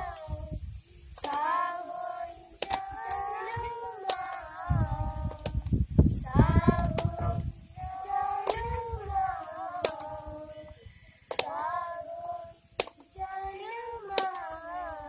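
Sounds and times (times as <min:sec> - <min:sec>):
children singing unaccompanied: 0:00.0 - 0:15.0
low rumbling microphone noise: 0:00.0 - 0:15.0.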